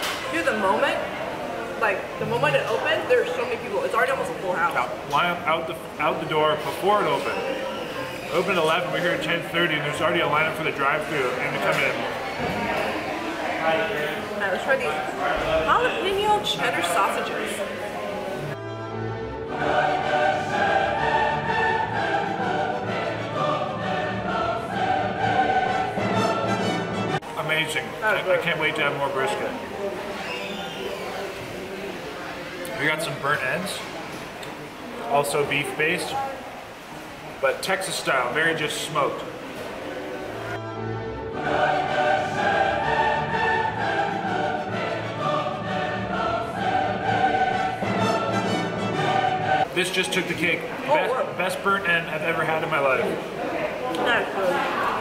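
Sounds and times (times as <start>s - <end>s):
choir singing operatic music: 0.0s - 32.1s, 38.2s - 55.0s
choir singing long notes: 17.4s - 27.2s, 39.9s - 49.8s.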